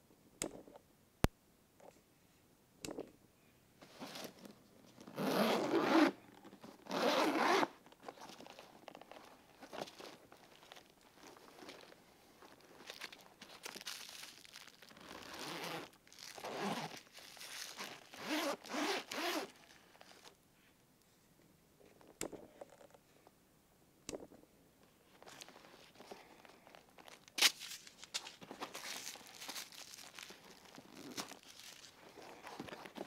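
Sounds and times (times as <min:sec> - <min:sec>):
zipper rasping open: 0:05.0 - 0:07.7, 0:15.0 - 0:20.3, 0:28.9 - 0:33.0.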